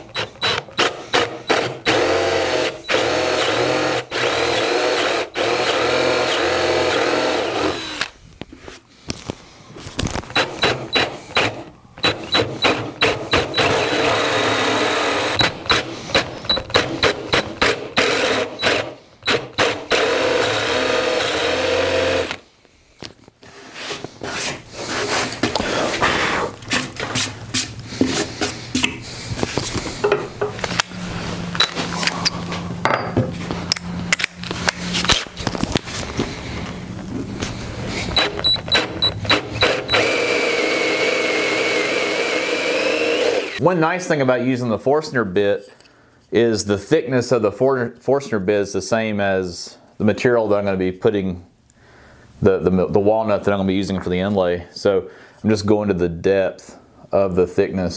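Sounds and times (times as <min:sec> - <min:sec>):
cordless drill boring into wood: 0:00.0 - 0:08.1, 0:10.3 - 0:22.4, 0:38.1 - 0:43.6.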